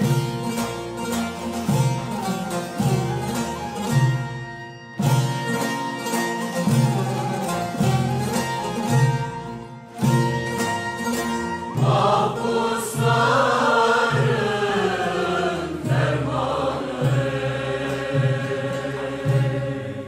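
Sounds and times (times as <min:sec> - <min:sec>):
violins and lute playing folk music: 0:00.0 - 0:20.0
choir singing: 0:11.7 - 0:20.0.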